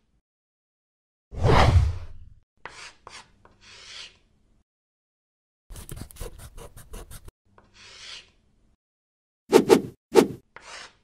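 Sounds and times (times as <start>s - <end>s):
marker scribbling on paper: 5.7s - 8.2s, 10.6s - 11.0s.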